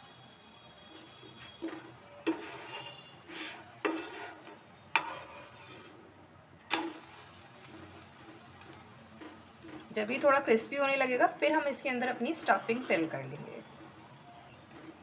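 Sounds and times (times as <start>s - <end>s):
utensil scraping and tapping pan: 1.0s - 6.0s
faint frying sizzle: 6.6s - 15.0s.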